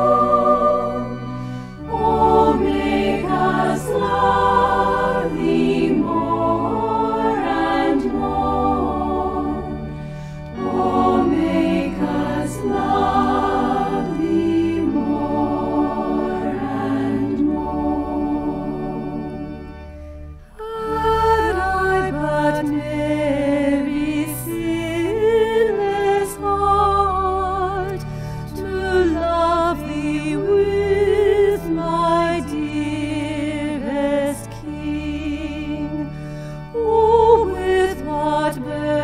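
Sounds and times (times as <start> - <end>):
choir singing sacred music: 0.0 - 39.0.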